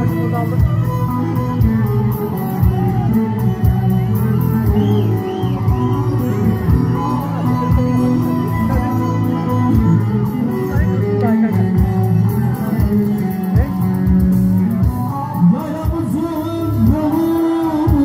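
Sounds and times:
folk dance music: 0:00.0 - 0:18.0
person singing: 0:15.4 - 0:18.0.

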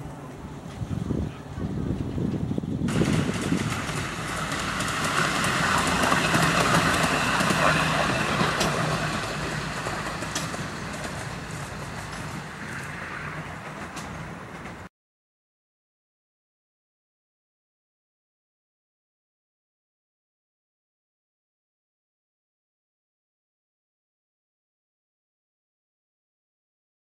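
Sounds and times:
rumble of wheels on rail: 0:00.0 - 0:14.9.

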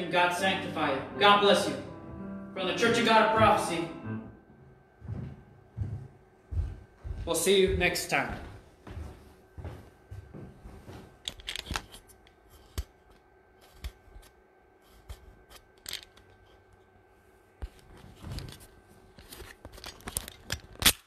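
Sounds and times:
camera handling clicks and rustles: 0:11.2 - 0:12.9, 0:15.5 - 0:16.6, 0:19.2 - 0:21.0.

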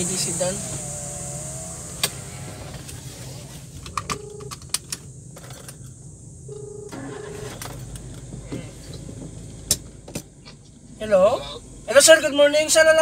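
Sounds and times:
car engine idling hum: 0:00.0 - 0:13.0
double ring tone: 0:04.1 - 0:04.6, 0:06.5 - 0:07.5.

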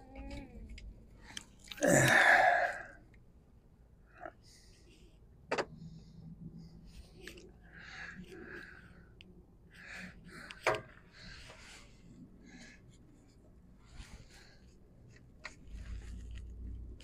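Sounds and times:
hands rustling against wiring: 0:06.8 - 0:17.0.

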